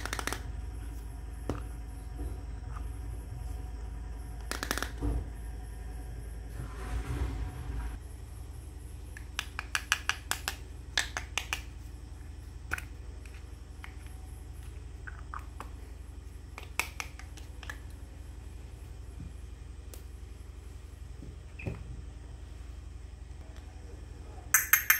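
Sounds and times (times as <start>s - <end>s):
plastic toy pots clicking: 0.0s - 0.5s, 4.4s - 5.0s, 9.2s - 11.7s, 16.5s - 17.9s
steady low hum: 0.0s - 24.9s.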